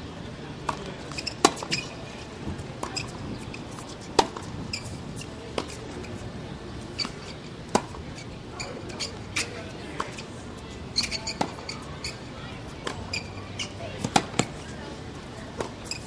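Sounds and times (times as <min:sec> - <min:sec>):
tennis ball hits and bounces: 0:00.6 - 0:04.9, 0:05.5 - 0:05.9, 0:07.0 - 0:08.0, 0:11.0 - 0:11.8, 0:12.8 - 0:14.7, 0:15.5 - 0:16.0.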